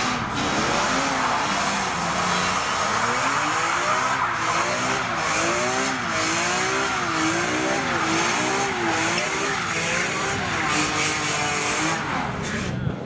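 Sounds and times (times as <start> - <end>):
car engine revving: 0.0 - 13.0.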